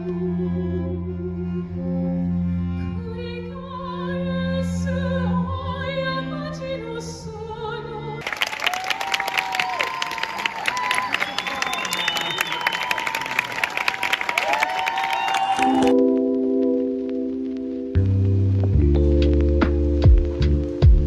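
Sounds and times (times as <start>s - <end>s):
cello low notes: 0.0s - 8.2s, 15.9s - 21.0s
string ensemble: 0.0s - 8.4s
audience applause and cheering: 8.2s - 16.0s.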